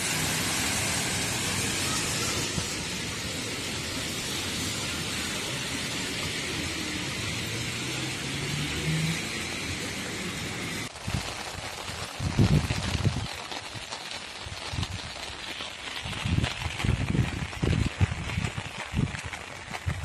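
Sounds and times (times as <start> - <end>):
passing vehicle engine: 0.0 - 10.9
car tyres on wet road: 0.0 - 20.0
rain hissing: 0.0 - 20.0.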